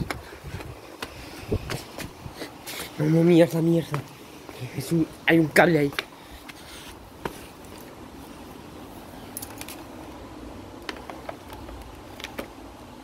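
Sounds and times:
sandal footsteps on tiles: 0.0s - 2.9s, 5.9s - 8.0s.

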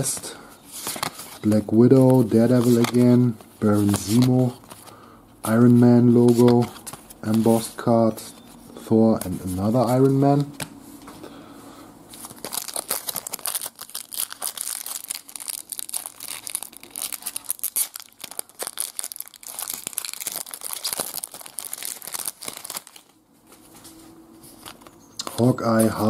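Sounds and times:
foil wrapper tearing and crinkling: 12.2s - 23.2s.

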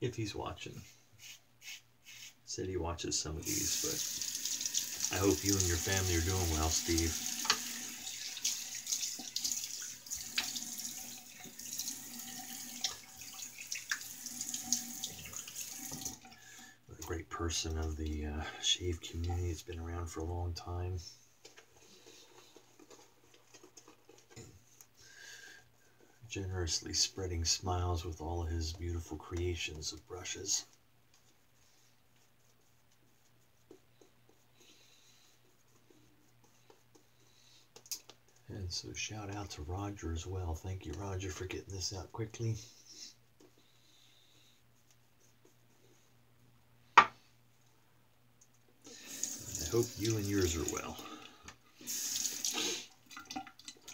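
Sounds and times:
tap water running into sink: 3.5s - 16.3s, 49.0s - 51.0s, 51.9s - 53.9s
water splashes: 49.2s - 51.0s.

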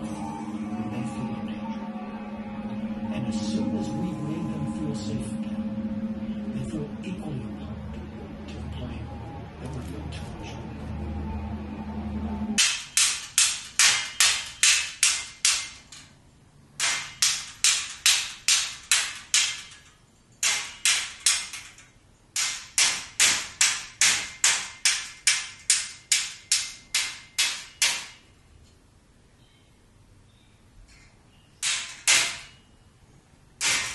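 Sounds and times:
rhythmic sharp strikes: 0.0s - 11.0s, 12.5s - 16.0s.

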